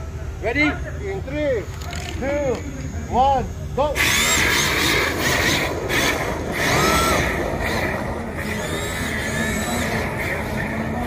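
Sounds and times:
steady background noise: 0.0s - 11.0s
rc car electric motors whining: 3.8s - 11.0s.

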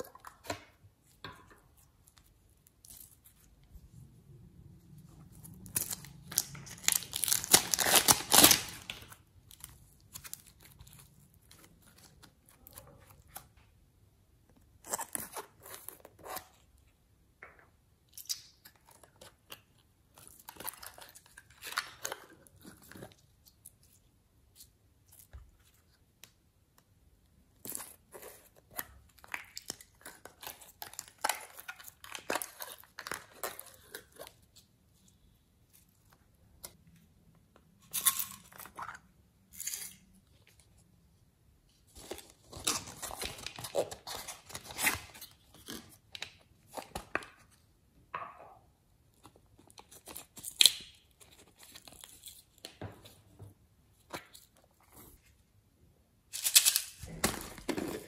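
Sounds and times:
slime crackling and popping: 5.5s - 11.5s.

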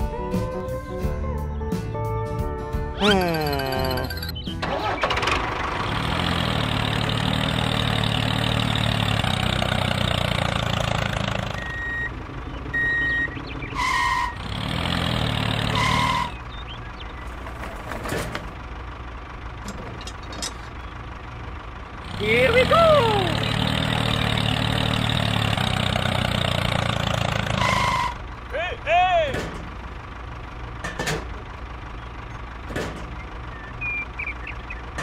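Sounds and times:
short beeps: 3.0s - 4.5s
tractor engine running: 3.0s - 35.0s
horn honks: 13.7s - 14.5s, 15.6s - 16.4s, 27.5s - 28.3s.

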